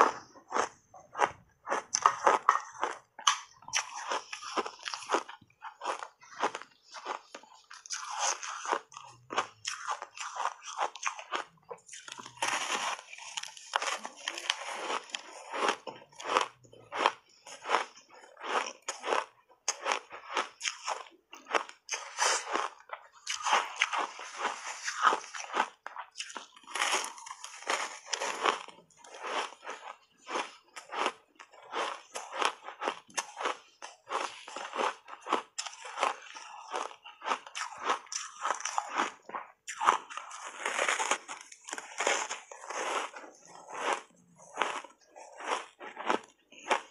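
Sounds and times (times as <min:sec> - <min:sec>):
ice crunching and chewing: 0:00.0 - 0:46.9.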